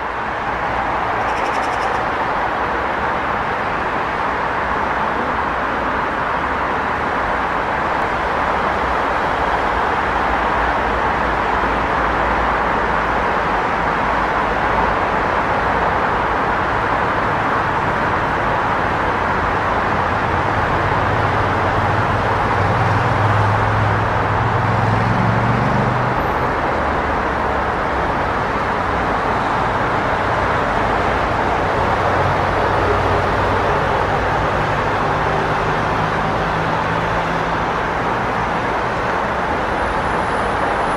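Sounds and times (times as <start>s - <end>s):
city street traffic: 0.0s - 40.9s.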